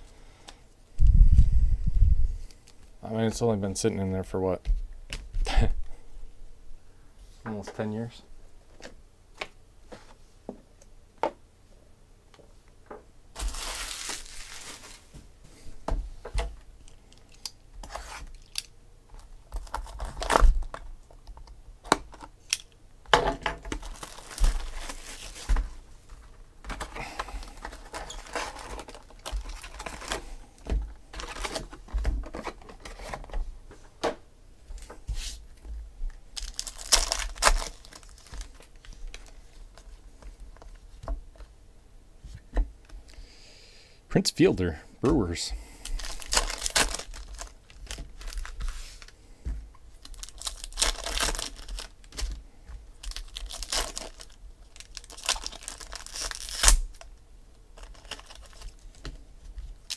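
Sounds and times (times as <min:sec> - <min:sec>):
foil packs crinkling and ripping: 0:13.3 - 0:15.2, 0:17.1 - 0:21.2, 0:23.7 - 0:33.2, 0:36.4 - 0:40.8, 0:45.8 - 0:49.2, 0:49.9 - 0:59.9
plastic wrapping tearing: 0:13.4 - 0:15.1, 0:19.5 - 0:20.8, 0:23.7 - 0:25.6, 0:26.8 - 0:30.3, 0:36.4 - 0:39.8, 0:45.9 - 0:49.2, 0:50.0 - 0:52.4, 0:53.0 - 0:57.1, 0:57.8 - 0:59.1.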